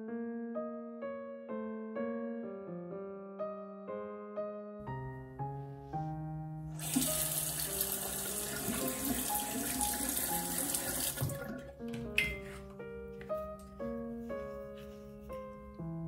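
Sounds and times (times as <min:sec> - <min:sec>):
soft piano music: 0:00.0 - 0:16.0
water running from a tap: 0:06.8 - 0:12.6.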